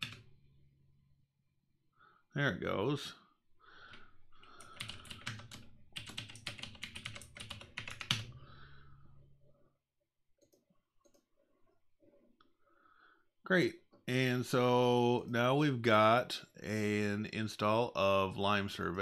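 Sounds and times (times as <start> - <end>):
computer keyboard typing: 0.0 - 0.3, 4.4 - 8.4.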